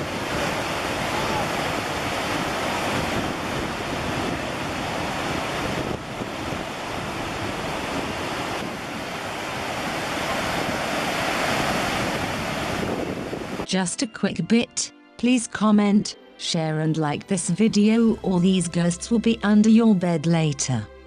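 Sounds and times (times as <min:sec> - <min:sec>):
river rapids rushing: 0:00.0 - 0:13.6.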